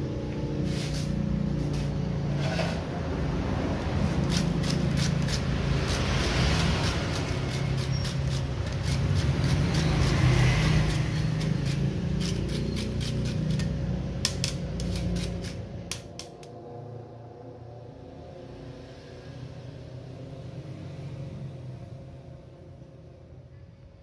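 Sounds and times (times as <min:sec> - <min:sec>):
banana grated on metal grater: 0:04.1 - 0:13.8, 0:14.7 - 0:15.7.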